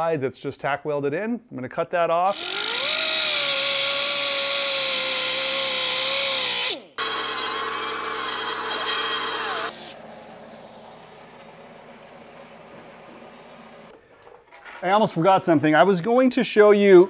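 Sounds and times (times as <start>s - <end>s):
cut-off wheel cutting steel: 2.3s - 13.9s.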